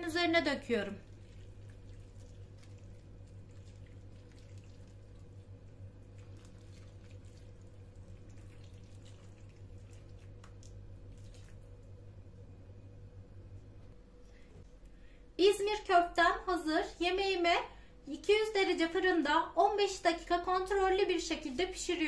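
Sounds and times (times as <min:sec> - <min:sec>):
steady low hum: 0:00.0 - 0:21.8
sauce trickling and dripping: 0:01.0 - 0:12.1.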